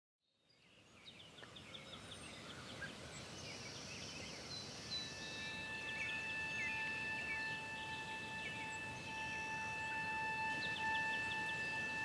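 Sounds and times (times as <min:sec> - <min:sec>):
birds chirping and trilling: 0:00.4 - 0:12.0
soft hiss: 0:00.5 - 0:12.0
steady held note: 0:05.0 - 0:12.0.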